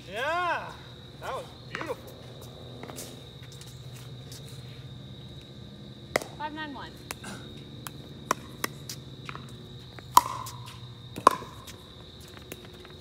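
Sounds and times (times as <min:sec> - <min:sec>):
paddles hitting plastic ball: 0:10.1 - 0:10.6.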